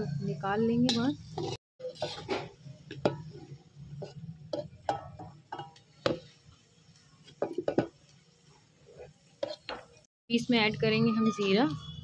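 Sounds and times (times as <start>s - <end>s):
metal spatula scraping a pan: 0.8s - 6.4s, 8.8s - 10.0s.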